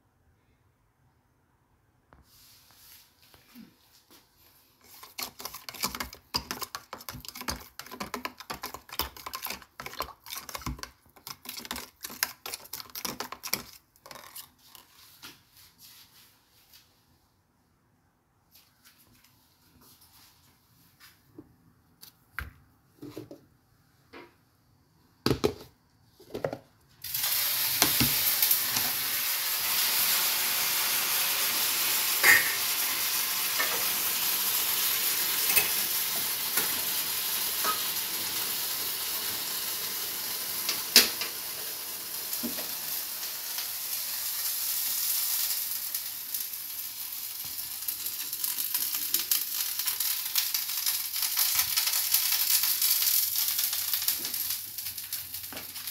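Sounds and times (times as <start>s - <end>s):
food sizzling in hot oil: 27.0s - 55.9s.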